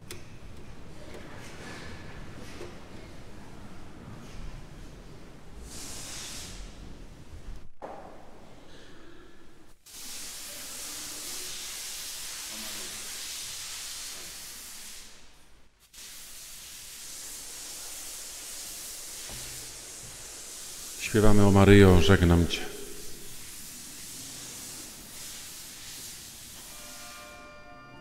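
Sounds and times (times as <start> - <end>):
open microphone hiss: 16.1 - 26.4.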